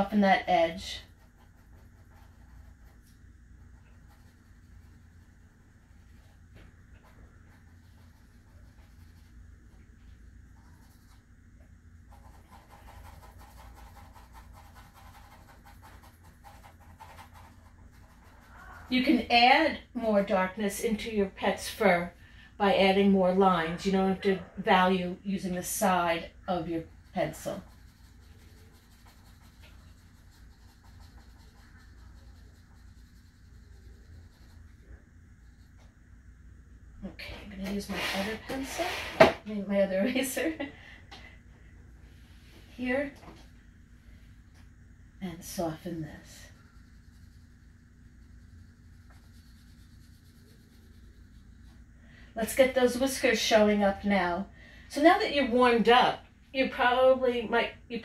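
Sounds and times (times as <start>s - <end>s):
pencil scratching on paper: 0.0s - 3.1s, 3.9s - 5.2s, 7.0s - 9.4s, 10.6s - 11.2s, 12.1s - 19.3s, 26.5s - 35.9s, 46.2s - 51.8s
steady low hum: 0.0s - 58.0s.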